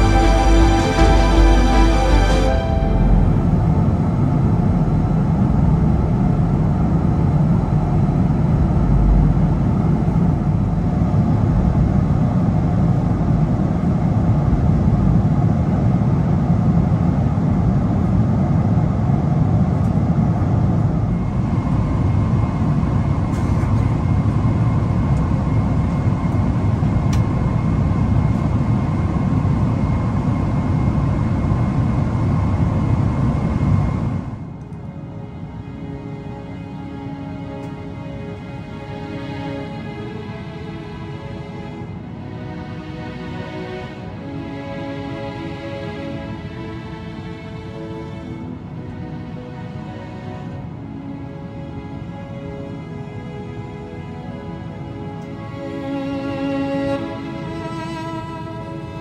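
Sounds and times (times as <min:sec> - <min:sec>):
jet cabin rushing noise: 0:00.0 - 0:35.1.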